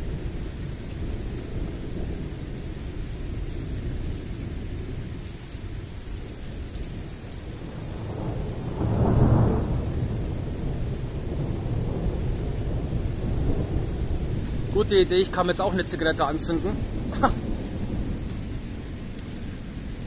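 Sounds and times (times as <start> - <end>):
falling rain: 0.0 - 20.0
thunder rumbling: 7.5 - 20.0.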